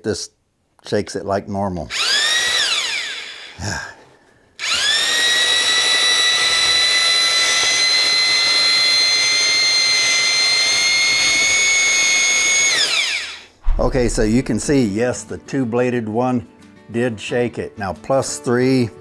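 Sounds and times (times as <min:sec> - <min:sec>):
mixing drill whining: 0:01.9 - 0:03.9, 0:04.6 - 0:13.6.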